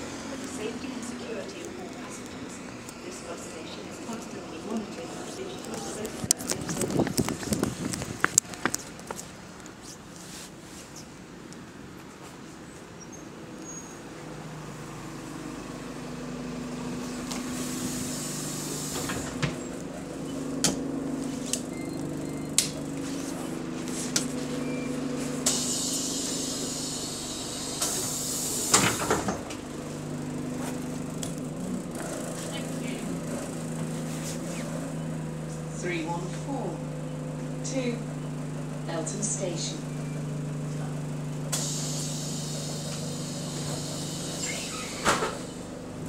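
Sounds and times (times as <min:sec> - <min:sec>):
bus diesel engine idling: 0:00.0 - 0:46.0
compressed air hiss: 0:17.5 - 0:19.3, 0:25.4 - 0:29.1, 0:41.5 - 0:45.6.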